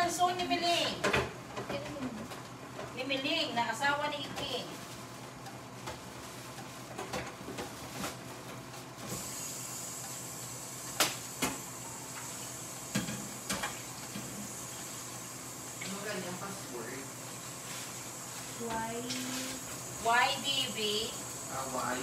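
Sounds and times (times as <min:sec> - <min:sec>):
steam hissing from pot: 0:09.0 - 0:22.0.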